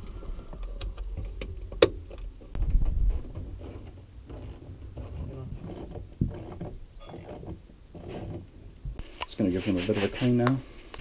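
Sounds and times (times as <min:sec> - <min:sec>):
low rumble: 0:00.0 - 0:07.0.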